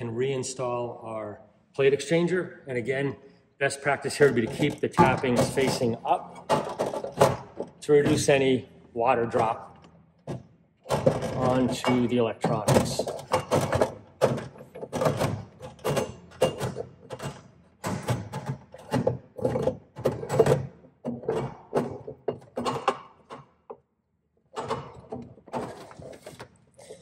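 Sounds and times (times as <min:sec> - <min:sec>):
metal clunks knocks and scrapes: 0:04.2 - 0:08.5.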